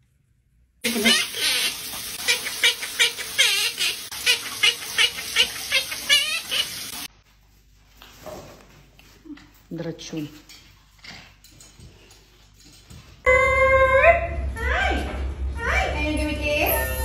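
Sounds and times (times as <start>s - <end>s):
parakeet talking: 0.9s - 7.0s
parakeet warbling: 0.9s - 7.0s.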